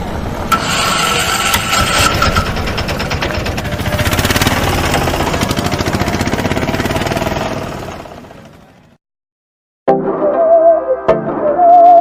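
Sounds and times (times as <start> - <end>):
pulsing engine-like rumble: 0.2 - 9.0.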